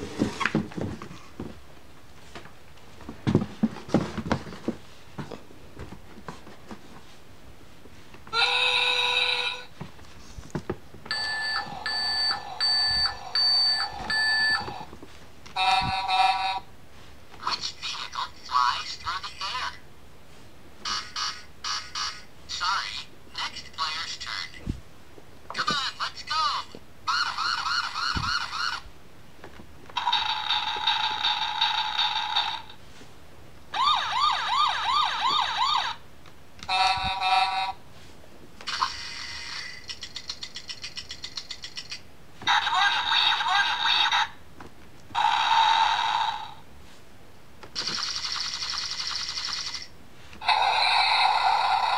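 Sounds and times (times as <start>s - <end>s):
reverse warning beeps: 11.1s - 14.7s.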